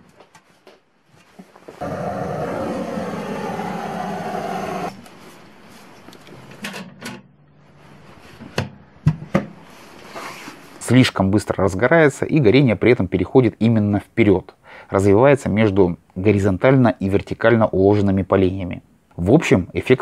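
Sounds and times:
gas torch hissing: 0:01.8 - 0:05.0.

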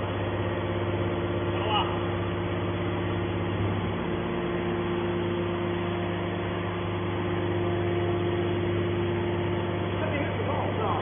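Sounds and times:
hydraulic motor and pump hum: 0:00.0 - 0:11.0.

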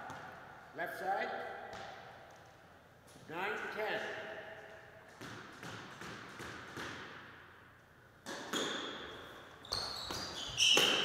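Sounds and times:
squash ball knocks echoing: 0:00.0 - 0:00.6, 0:01.4 - 0:02.4, 0:05.0 - 0:07.5, 0:08.2 - 0:11.0
shoe squeak on wooden floor: 0:09.6 - 0:11.0.

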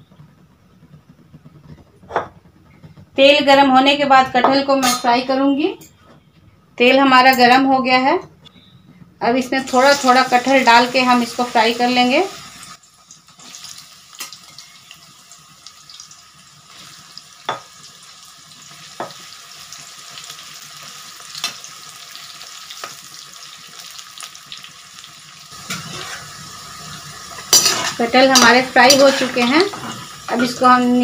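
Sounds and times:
food sizzling in oil: 0:09.3 - 0:31.0
metal spatula knocking pan: 0:27.5 - 0:30.8.

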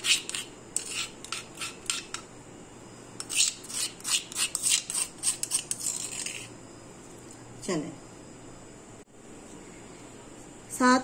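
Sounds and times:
rasping scrapes on stone mortar: 0:00.0 - 0:02.1, 0:03.2 - 0:06.5.

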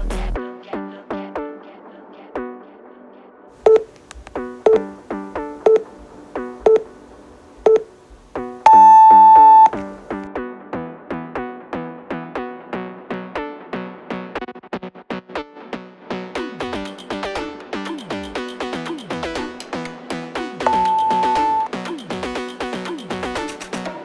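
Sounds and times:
timer countdown beeps: 0:03.7 - 0:03.9, 0:04.7 - 0:04.9, 0:05.6 - 0:05.9, 0:06.6 - 0:06.9, 0:07.6 - 0:07.9, 0:08.7 - 0:09.8, 0:20.7 - 0:21.7
electronic music with plucked notes: 0:20.7 - 0:21.7.

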